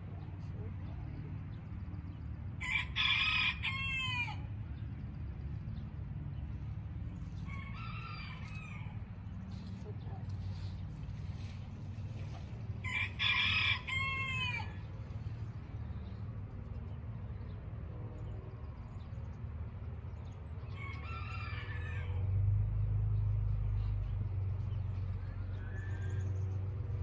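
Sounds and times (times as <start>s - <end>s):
rooster crowing: 2.6s - 4.5s, 7.4s - 9.0s, 12.8s - 14.9s, 20.7s - 22.3s, 25.2s - 26.4s
steady low rumble: 4.4s - 21.1s.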